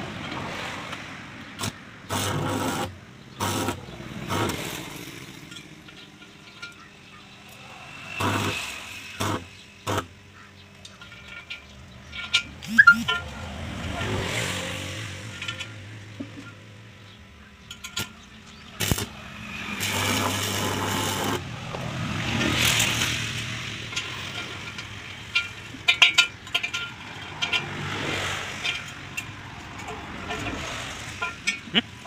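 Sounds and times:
welding arc crackling and hissing: 0:08.2 - 0:10.1, 0:18.8 - 0:23.9.

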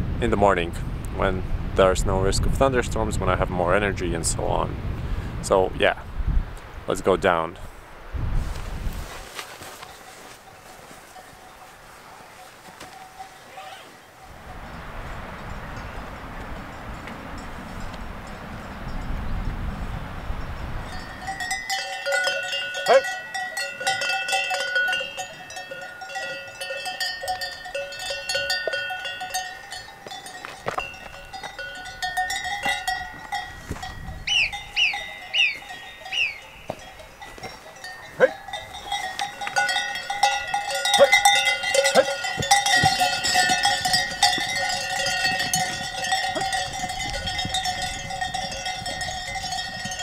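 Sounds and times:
cowbells clanking: 0:09.6 - 0:14.4, 0:20.8 - 0:50.0.

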